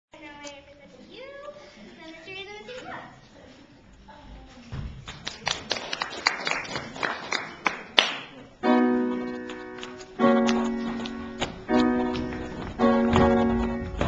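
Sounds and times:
piano chord ringing: 0:08.6 - 0:14.0.

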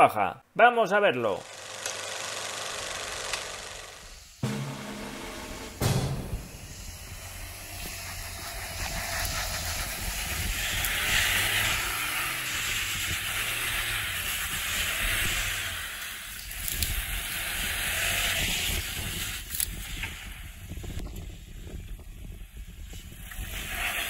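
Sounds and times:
loud hiss: 0:02.4 - 0:17.4.

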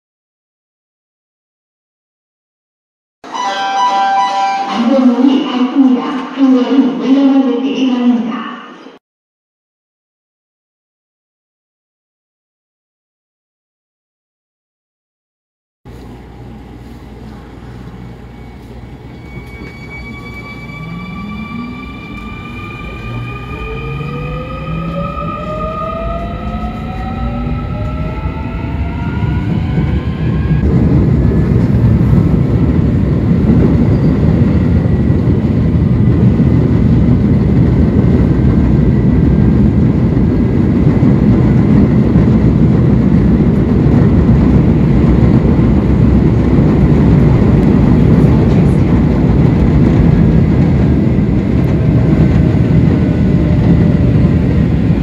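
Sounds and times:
train rumbling at speed: 0:15.9 - 0:55.0
train traction motors whining: 0:16.0 - 0:30.6.

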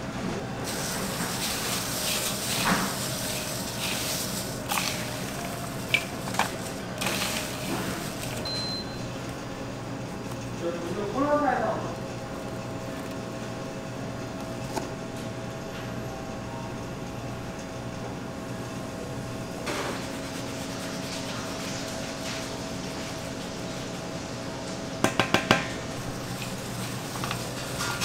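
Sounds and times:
kitchen equipment hum: 0:00.0 - 0:28.0
seasoning powder pouring: 0:00.6 - 0:08.4.

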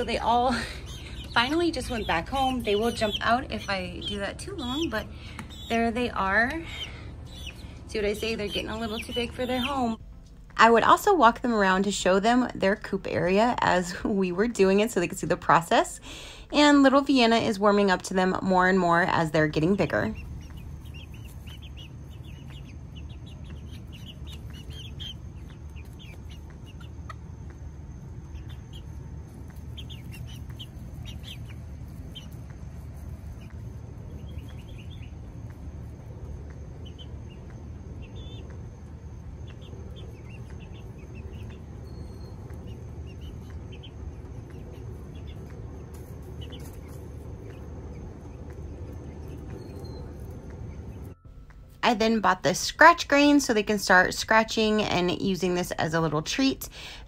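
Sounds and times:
steady low hum: 0:00.0 - 0:57.0
young chickens peeping and clucking: 0:00.0 - 0:57.0.

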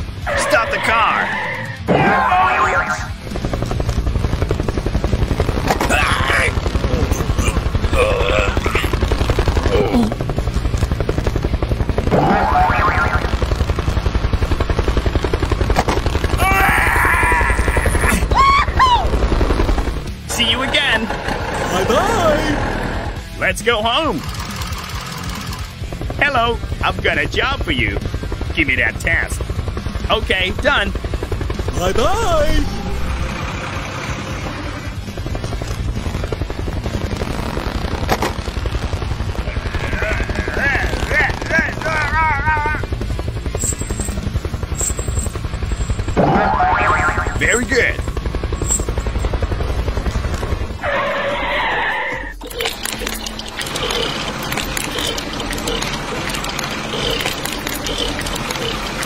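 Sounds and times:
helicopter rotor chopping: 0:00.0 - 0:59.0
upward sweeping cartoon tone: 0:46.2 - 0:47.4.

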